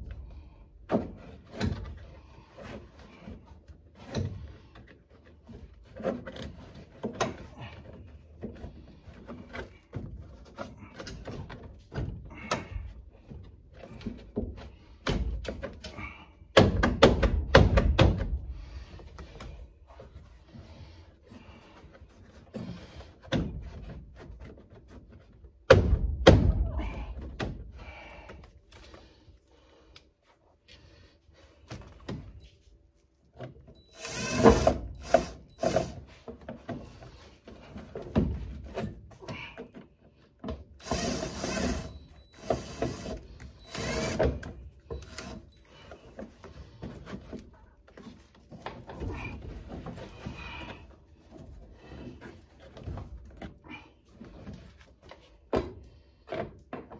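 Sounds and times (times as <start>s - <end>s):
knocks and clunks of hand work: 0.8s - 18.5s, 21.9s - 28.4s, 34.5s - 40.8s, 46.1s - 56.9s.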